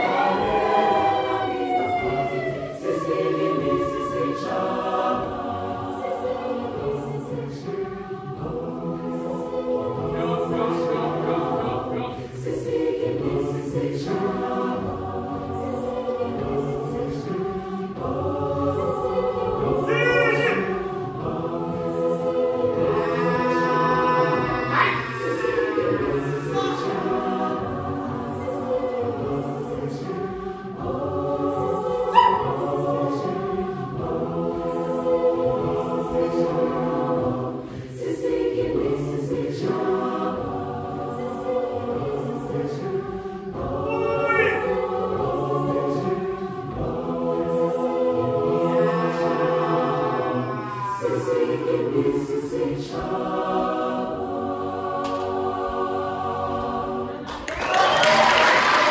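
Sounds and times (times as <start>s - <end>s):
choir singing gospel: 0.0s - 58.9s
singers clapping: 55.0s - 55.8s, 57.0s - 58.9s.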